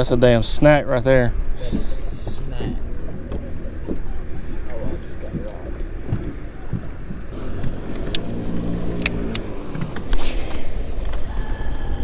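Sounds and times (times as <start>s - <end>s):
wind rumbling on microphone: 0.8s - 12.0s
low hum: 1.3s - 12.0s
fishing line swish: 10.0s - 11.1s.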